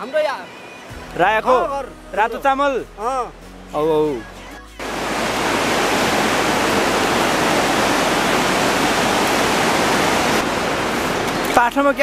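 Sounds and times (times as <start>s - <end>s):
river rapids rushing: 4.8s - 12.0s.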